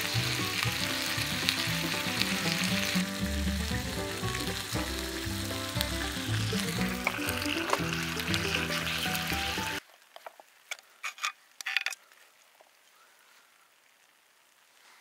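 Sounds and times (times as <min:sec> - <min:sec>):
background music: 0:00.0 - 0:09.8
frying sizzle: 0:00.0 - 0:09.8.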